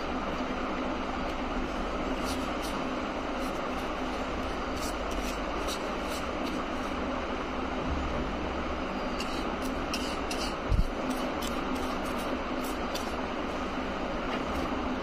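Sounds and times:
steady rushing room noise: 0.0s - 15.0s
paintbrush scratching on paper plate: 2.2s - 7.0s, 9.1s - 13.2s.

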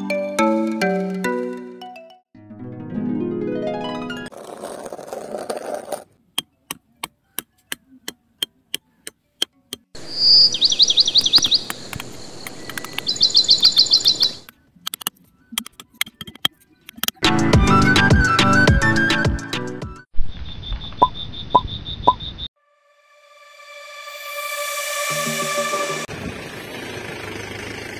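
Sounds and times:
small bird chirping: 10.0s - 14.6s, 20.2s - 22.5s
sharp clicks: 11.2s - 13.2s, 14.4s - 17.2s.

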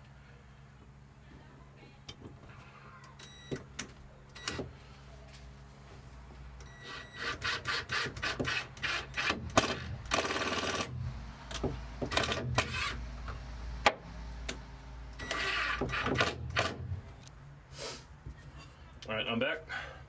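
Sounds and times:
drill driving screws into wood: 6.8s - 11.0s, 12.1s - 13.0s, 15.2s - 16.9s.

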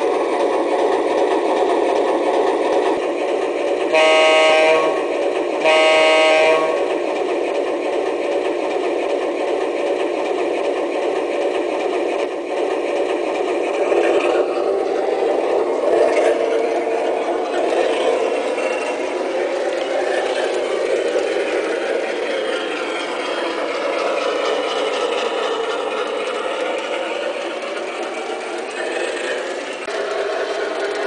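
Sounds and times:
model trains running on track: 0.0s - 31.0s
model locomotive electronic horn: 3.9s - 6.9s.

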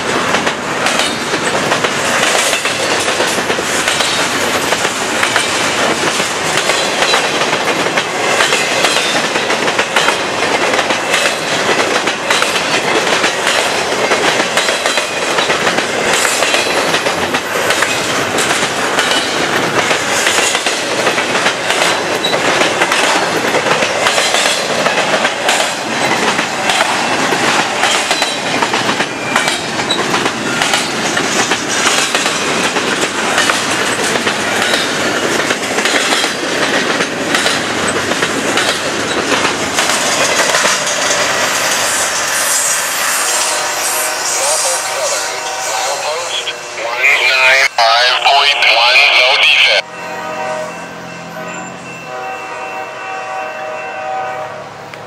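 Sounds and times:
train wheels rumbling on rail: 0.0s - 46.6s
wheels clicking over rail joints: 0.3s - 41.3s.

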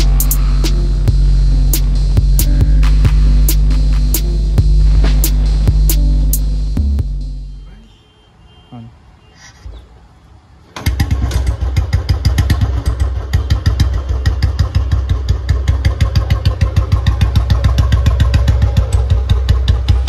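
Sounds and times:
motorcycle engine starting and idling: 10.7s - 20.0s.

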